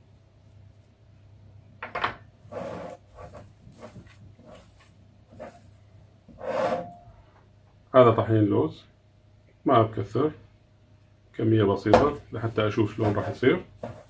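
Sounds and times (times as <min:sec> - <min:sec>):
wooden spoon stirring: 0:02.5 - 0:05.7, 0:12.4 - 0:14.0
hands kneading dough: 0:02.5 - 0:05.9.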